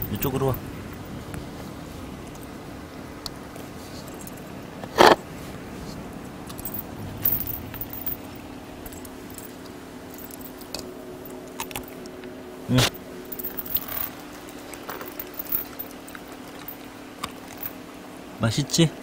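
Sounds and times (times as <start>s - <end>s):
metal chain jangling: 0.0s - 1.1s, 3.9s - 4.5s, 6.5s - 12.0s, 12.9s - 17.8s.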